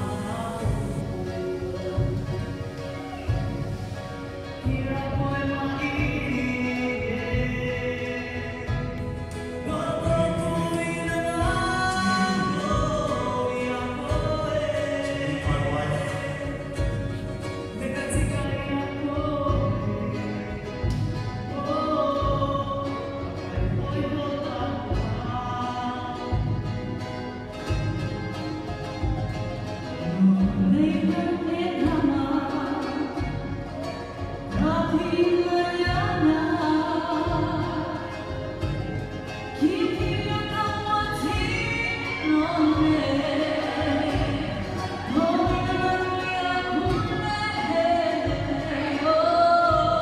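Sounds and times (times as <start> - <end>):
steady percussive beat: 0.0 - 50.0.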